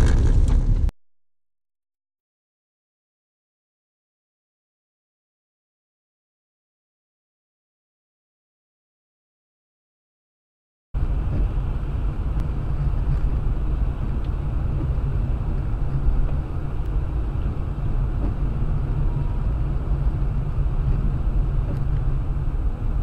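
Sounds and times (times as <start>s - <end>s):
car engine and tyres rumbling: 0.0s - 0.9s, 11.0s - 23.0s.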